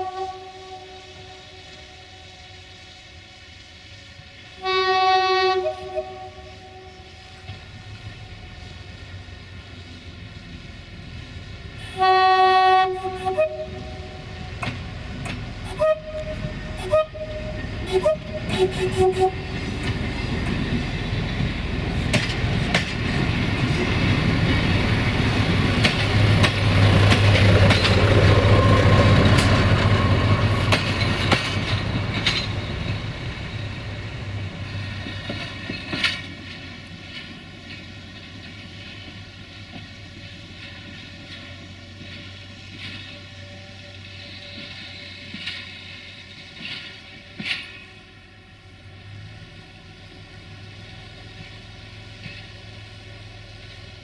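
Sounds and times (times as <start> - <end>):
two-tone train horn: 0.0 - 2.5, 4.6 - 7.2, 11.8 - 14.7, 15.6 - 19.6, 43.1 - 45.4
railcar engine and running noise: 0.0 - 54.0
wheel clicks over rail joints: 35.0 - 39.1.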